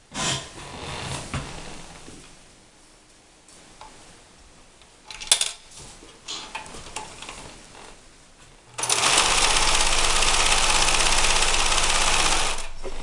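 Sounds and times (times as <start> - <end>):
sewing machine stitching: 8.8 - 12.8.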